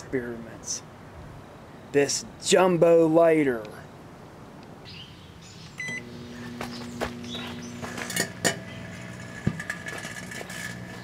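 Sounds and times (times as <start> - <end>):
microwave oven humming: 5.7 - 11.0
microwave keypad beep: 5.8 - 6.1.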